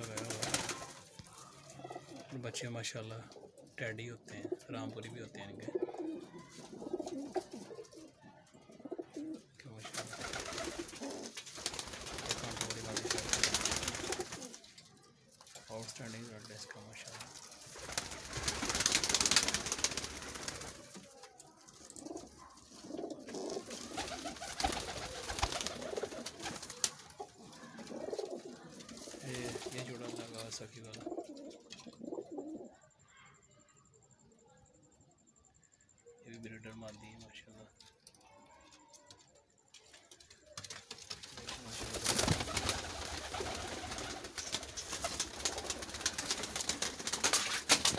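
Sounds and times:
pigeons cooing: 3.2 - 11.4, 21.8 - 32.8
rustling and scuffling: 39.8 - 47.9.

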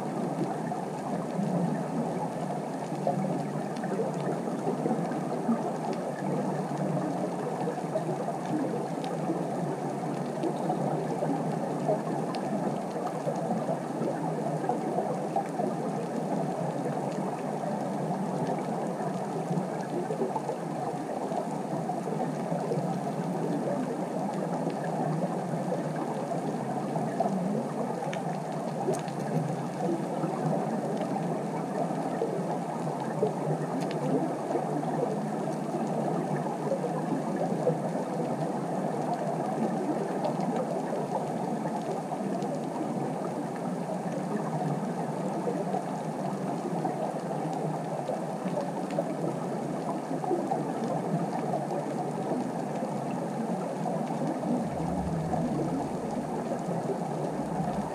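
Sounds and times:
muffled underwater rushing: 0.0 - 57.9
faint clicks: 27.0 - 31.2.

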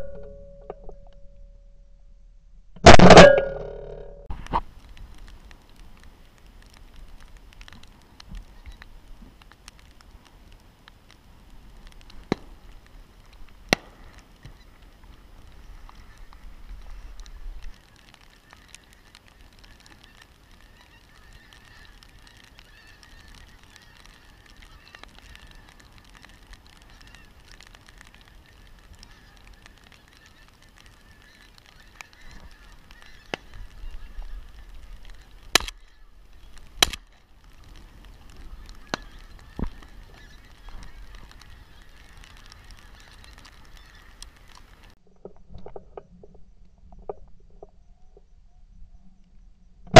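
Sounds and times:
sharp bangs: 2.8 - 4.3
loud sharp cracks: 2.8 - 4.6, 13.7 - 14.6, 35.0 - 37.8, 38.6 - 45.0
small clicks: 13.3 - 47.7
geese honking overhead: 14.2 - 36.6, 37.4 - 45.0.

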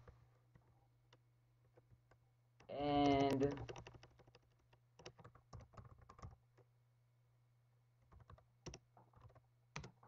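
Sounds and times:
computer keyboard typing: 2.8 - 6.4, 8.1 - 10.0.

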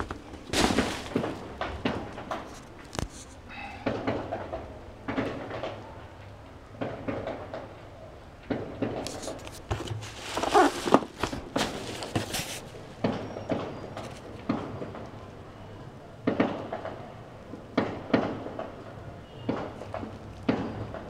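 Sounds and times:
cardboard box scraping and rustling: 0.0 - 1.4, 9.0 - 12.8.

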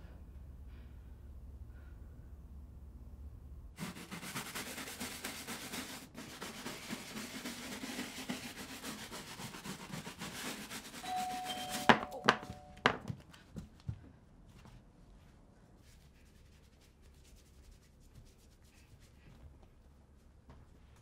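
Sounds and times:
low room hum: 0.0 - 21.0
hand-scrubbing wooden floor: 3.8 - 12.4.

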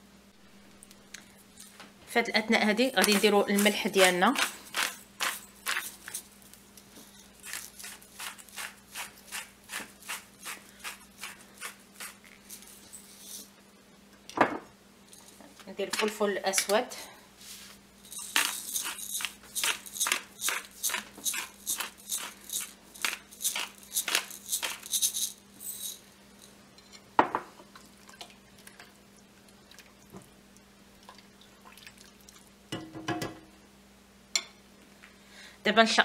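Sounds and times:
faint steady hum: 0.0 - 36.0
pepper mill grinding: 2.4 - 13.5, 18.0 - 26.6
spatula scraping in a pot: 2.7 - 6.3, 7.0 - 13.5, 17.4 - 24.8.

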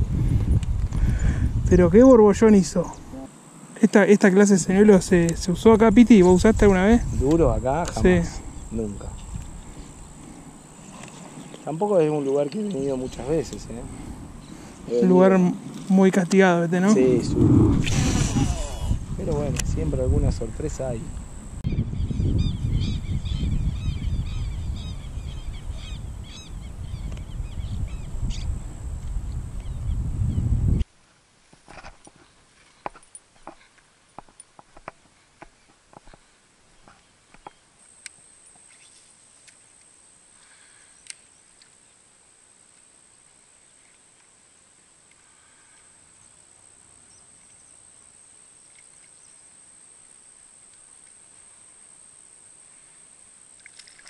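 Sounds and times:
wind rumble on microphone: 0.0 - 3.2, 4.6 - 10.2, 16.9 - 30.9
low background hiss: 1.6 - 21.6, 23.8 - 54.0
high-pitched whine: 16.8 - 21.6.

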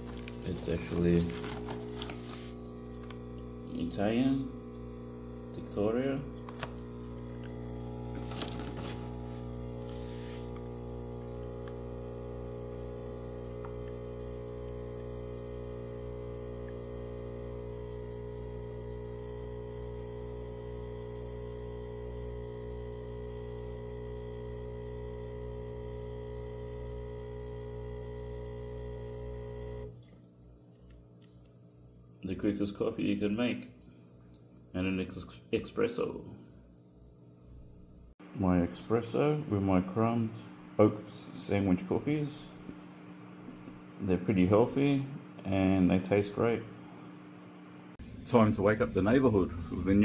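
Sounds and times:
espresso machine pump humming: 0.0 - 32.1, 47.0 - 50.0.

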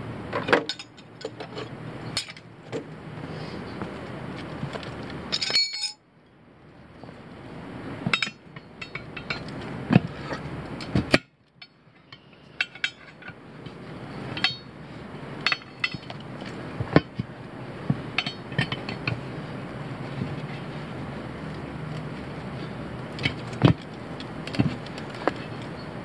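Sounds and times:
tire irons clinking on wheel rim: 0.1 - 6.0, 6.9 - 26.0.

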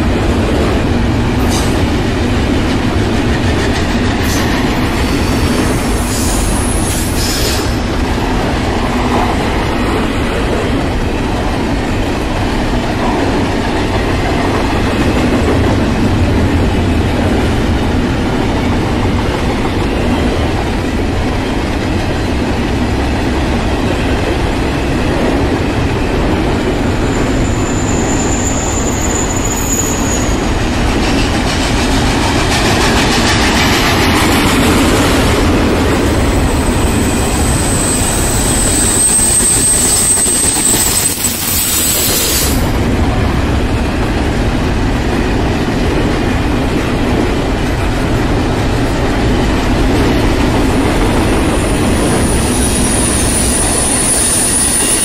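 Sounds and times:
freight train wheels clattering: 0.1 - 55.0
steel wheel squeal: 27.1 - 30.6, 36.3 - 42.7, 51.6 - 55.0.

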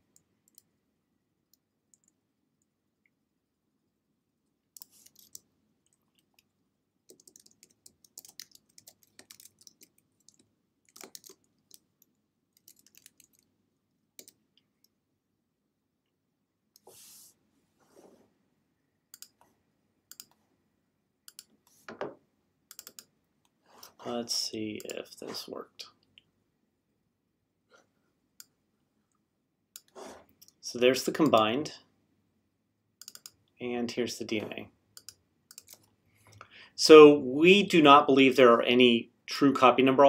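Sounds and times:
typing on computer keyboard: 4.8 - 5.5, 7.1 - 11.9, 12.6 - 13.5, 14.2 - 14.4, 19.1 - 19.4, 20.1 - 20.4, 22.7 - 23.1, 33.0 - 33.4, 35.0 - 35.9.

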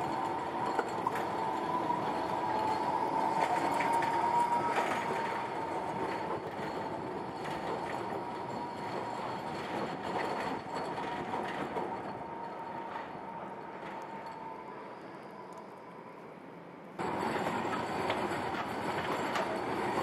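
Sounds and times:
tram running rumble: 0.0 - 20.0
tram wheels squealing: 0.0 - 20.0.

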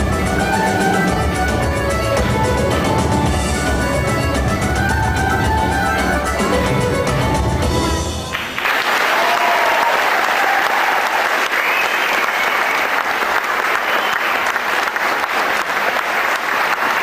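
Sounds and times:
dance music: 0.0 - 8.4
audience applause: 8.3 - 17.0.

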